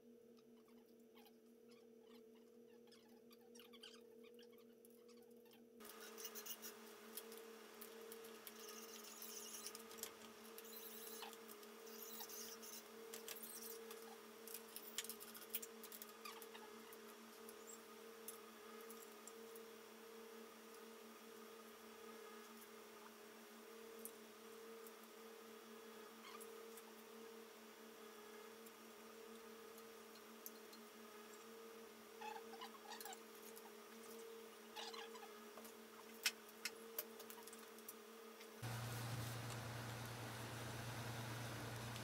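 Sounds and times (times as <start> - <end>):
clicks and rustles of wires: 13.1 - 16.6
steady hum: 38.6 - 42.0.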